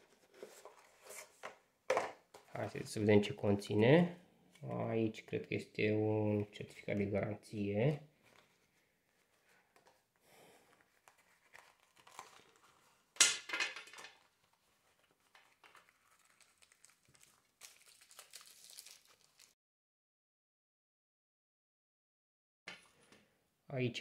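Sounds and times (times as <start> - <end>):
drawstring pouch rustling: 10.7 - 13.1
plastic packet crinkling: 14.4 - 19.6.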